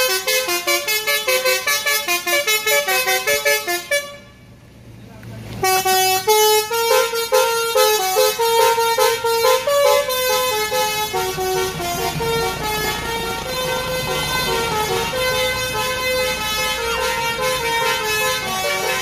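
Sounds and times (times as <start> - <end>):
musical air horn melody: 0.0 - 4.4, 5.6 - 19.0.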